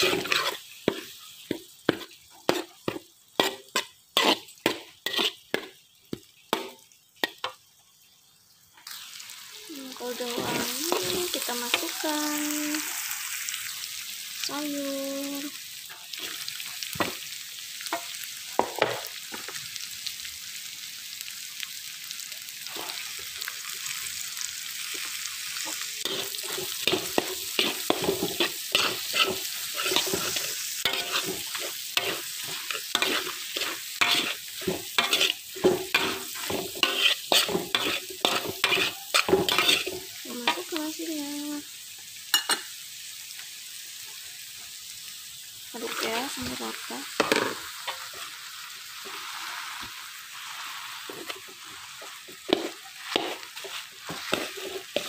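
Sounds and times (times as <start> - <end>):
metal spatula scraping a wok: 0.0 - 5.8, 25.7 - 40.8, 49.0 - 55.0
food sizzling in hot oil: 0.0 - 55.0.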